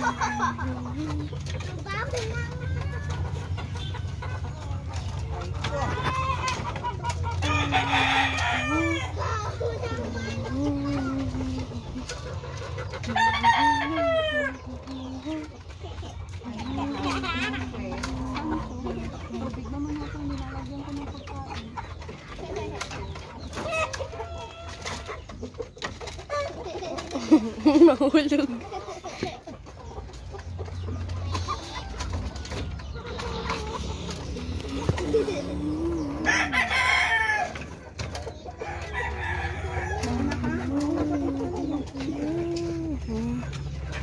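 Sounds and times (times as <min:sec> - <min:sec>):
chickens clucking: 0:00.0 - 0:44.0
rooster crowing: 0:36.2 - 0:37.6.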